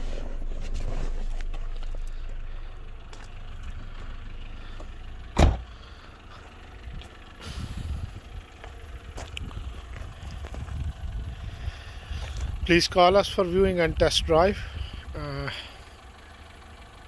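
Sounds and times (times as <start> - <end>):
low rumble: 0.0 - 15.3
car door shutting: 5.3 - 5.7.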